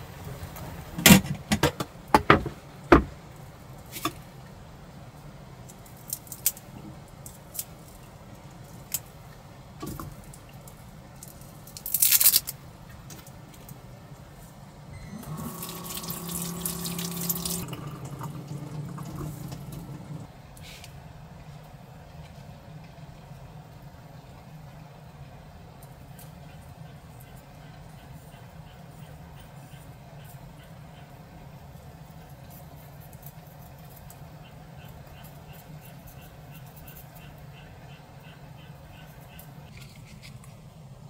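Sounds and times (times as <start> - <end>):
water pouring: 15.1 - 20.3.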